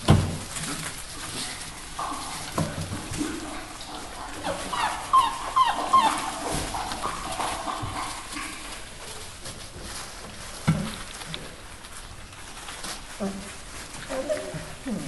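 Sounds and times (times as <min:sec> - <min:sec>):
scuffling in wood shavings: 0:00.0 - 0:15.0
puppies whimpering and yipping: 0:03.8 - 0:09.2
puppies high cries: 0:03.9 - 0:08.8.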